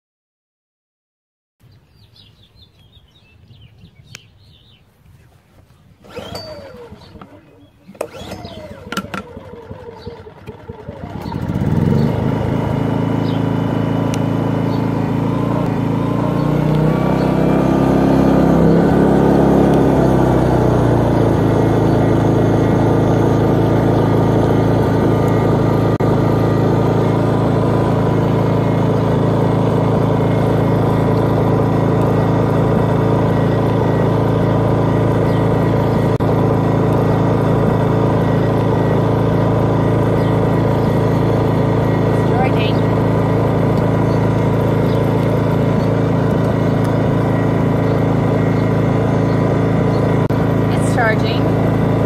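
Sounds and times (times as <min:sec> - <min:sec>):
generator running: 0:06.0 - 0:52.0.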